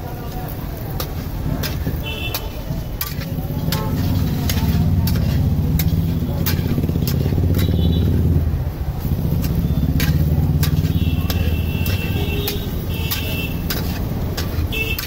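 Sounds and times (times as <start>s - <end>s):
metal spatula scraping frying pan: 1.0s - 8.4s, 9.0s - 15.0s
low steady rumble: 3.0s - 14.7s.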